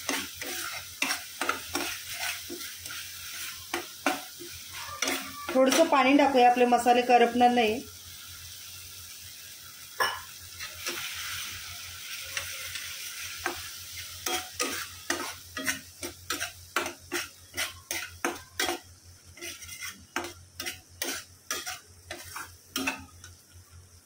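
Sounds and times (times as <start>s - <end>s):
metal spatula scraping pan: 0.0s - 6.7s, 12.2s - 23.3s
paste sizzling in oil: 0.0s - 24.0s.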